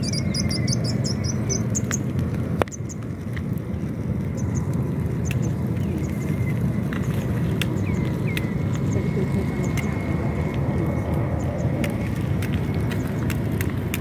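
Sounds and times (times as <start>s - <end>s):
bird chirps: 0.0s - 2.0s, 7.7s - 10.0s
low rumble: 0.0s - 14.0s
wood fire crackling and popping: 0.0s - 14.0s.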